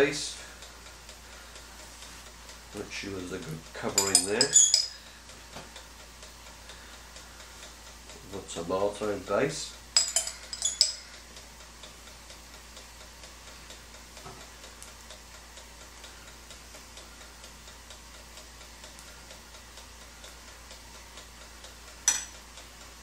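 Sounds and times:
faint mechanical ticking: 0.1 - 4.0, 4.9 - 23.0
spoon clinking against glass jar: 4.0 - 5.0, 10.0 - 11.1.

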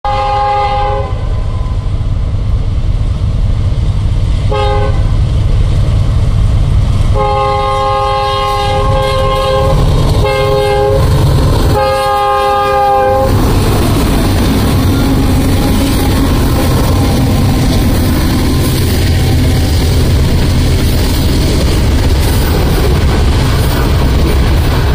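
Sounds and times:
train air horn blasts: 0.0 - 1.8, 4.5 - 5.2, 7.1 - 11.1, 11.7 - 13.4, 14.9 - 17.6
locomotive engines rumbling: 0.1 - 24.9.

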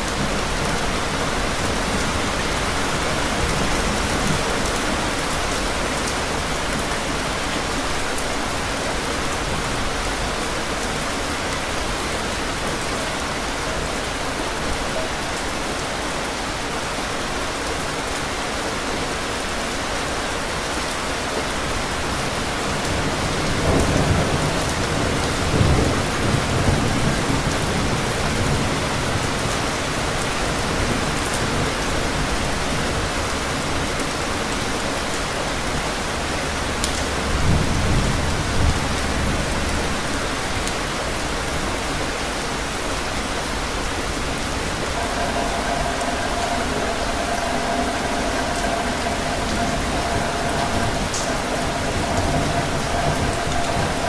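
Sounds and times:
heavy rain pouring: 0.0 - 54.0
rolling thunder: 43.5 - 54.0.

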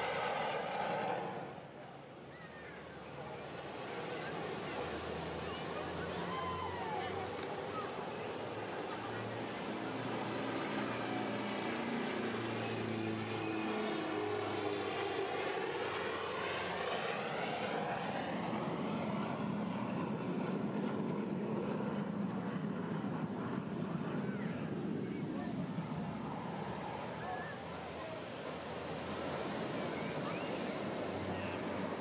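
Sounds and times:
airplane flying past: 0.0 - 32.0.

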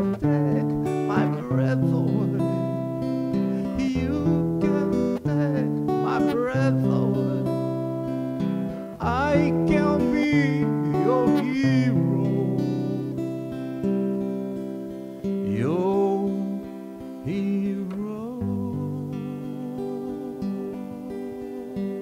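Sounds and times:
man singing: 0.0 - 13.6, 15.4 - 22.0
acoustic guitar strumming chords: 0.0 - 22.0.

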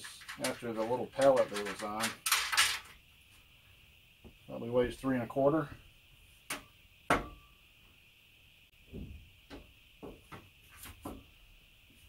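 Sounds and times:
bolts rattling against metal frame: 0.0 - 2.9.

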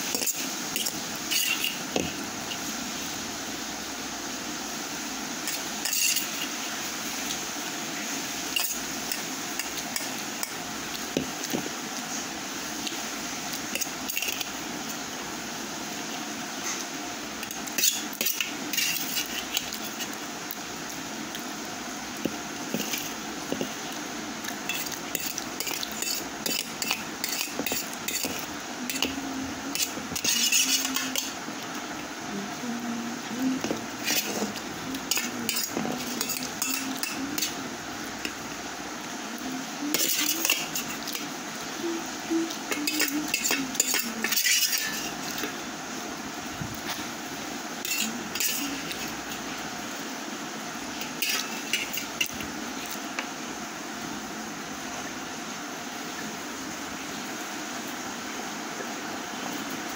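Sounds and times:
metal spoon scraping a metal plate: 0.1 - 1.8, 5.5 - 6.4, 17.8 - 20.2, 24.7 - 31.4, 33.6 - 34.5, 35.1 - 37.6, 39.9 - 41.1, 42.7 - 45.5, 47.8 - 49.1, 51.0 - 52.3.

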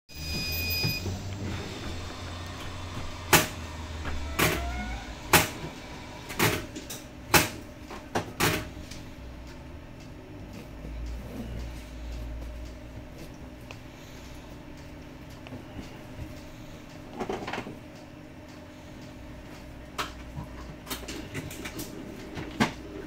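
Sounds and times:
bus interior hum: 0.2 - 6.3.

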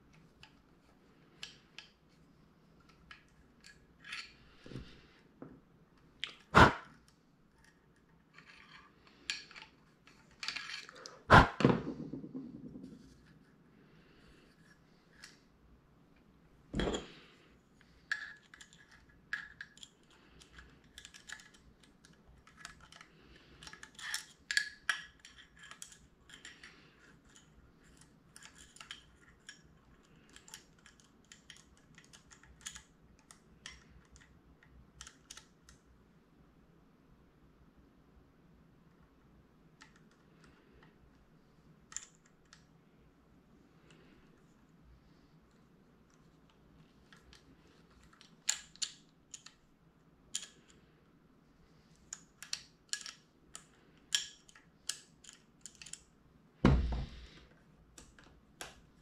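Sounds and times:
screwdriver clicking and scraping: 7.5 - 11.2, 18.1 - 34.3, 51.9 - 56.0.

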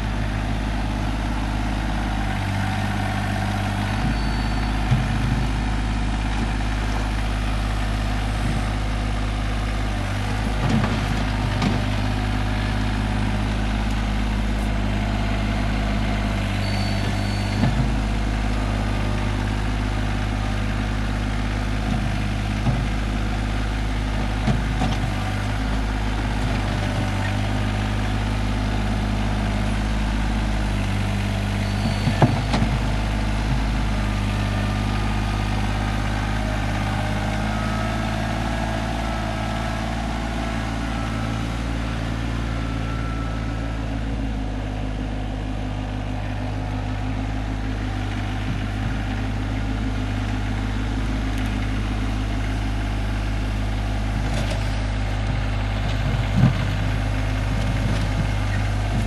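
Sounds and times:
tractor diesel engine running: 0.0 - 59.0
loader bucket knocks: 3.9 - 5.6, 31.9 - 34.0.

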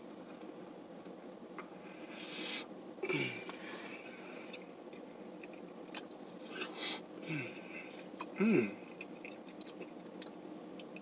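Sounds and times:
person chewing food: 4.4 - 6.7, 8.0 - 11.0.

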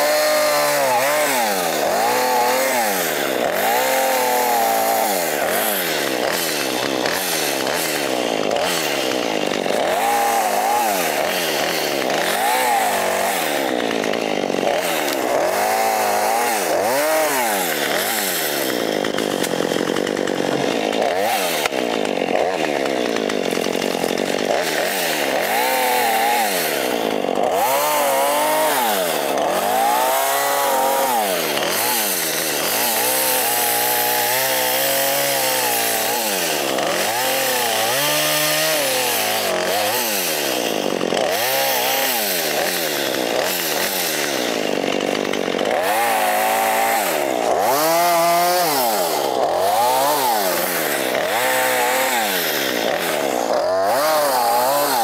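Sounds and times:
pole saw motor revving: 0.0 - 55.0.

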